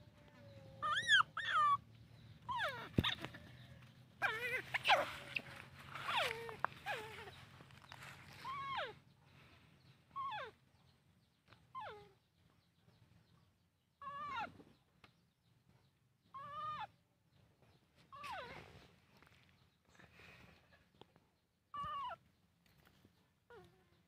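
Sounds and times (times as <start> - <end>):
baby monkey crying: 0.4 - 1.8, 2.4 - 3.6, 4.2 - 7.4, 8.3 - 9.0, 10.1 - 10.6, 11.7 - 12.2, 14.0 - 14.6, 16.3 - 17.0, 18.1 - 18.7, 21.7 - 22.2.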